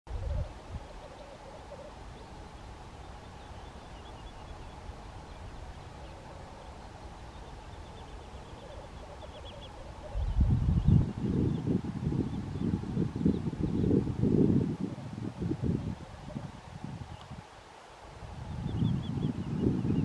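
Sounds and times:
black grouse bubbling song: 0.1s - 11.7s
wind rumble on microphone: 0.1s - 20.0s.

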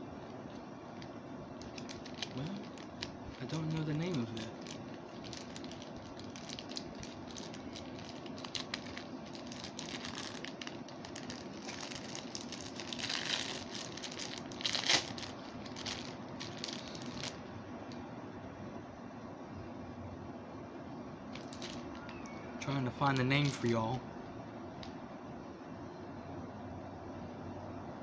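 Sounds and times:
plastic bag crinkling: 0.2s - 17.5s, 21.3s - 22.2s.

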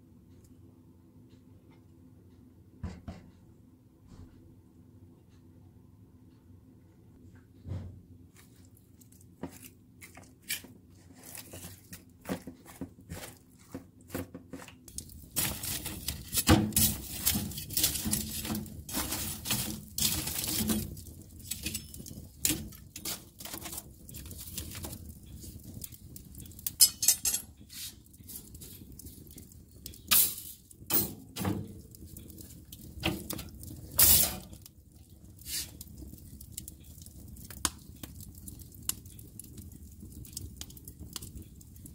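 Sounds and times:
wood fire crackling and popping: 8.5s - 41.9s.

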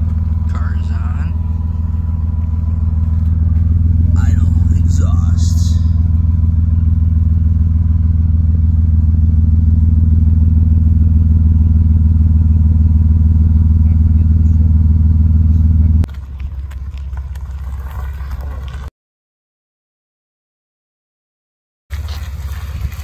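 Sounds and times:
car engine idling: 0.0s - 18.9s, 21.9s - 23.0s.

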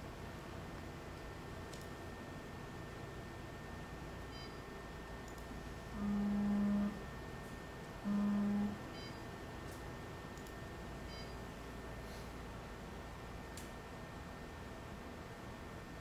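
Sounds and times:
low electronic tones: 5.9s - 7.0s, 8.0s - 8.8s
faint high beeps: 11.1s - 11.4s.

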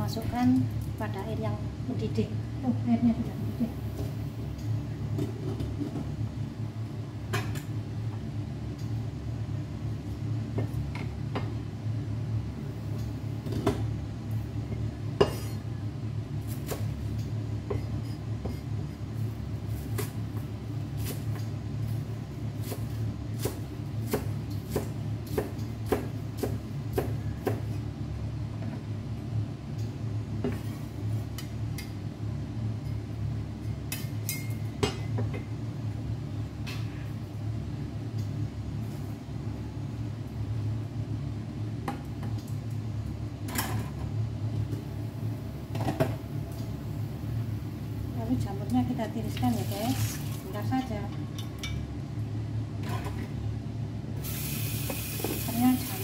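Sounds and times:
steady low hum: 0.0s - 56.0s
knife chopping on cutting board: 23.4s - 27.8s.

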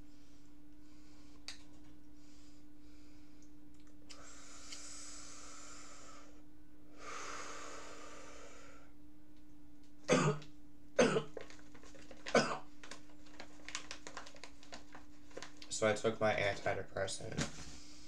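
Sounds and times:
man coughing sharply: 10.1s - 10.4s, 11.0s - 11.3s.

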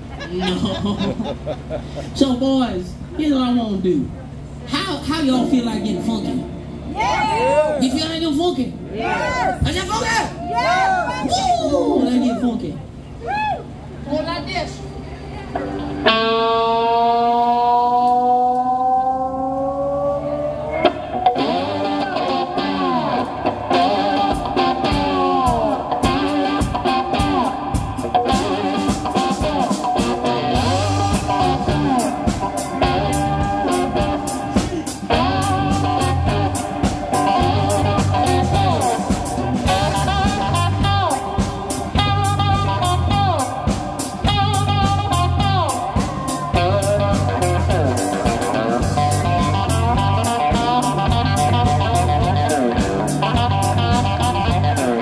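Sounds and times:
bass guitar: 0.0s - 55.0s
drums: 6.6s - 11.9s, 20.2s - 55.0s
slide guitar blues: 15.4s - 55.0s.

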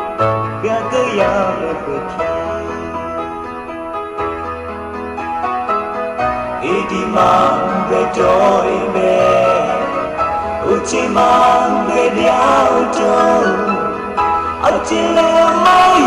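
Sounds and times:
instrumental accompaniment: 0.0s - 16.0s
man singing: 0.6s - 3.4s, 6.6s - 16.0s.

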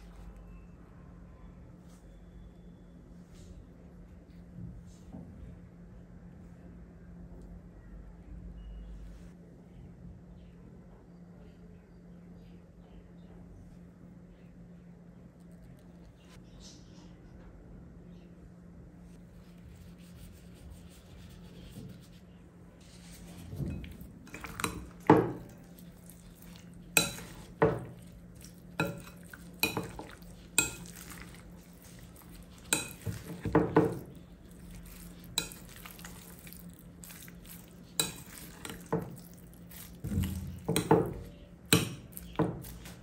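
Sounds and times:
spoon clinking glass bowl: 23.6s - 42.7s.

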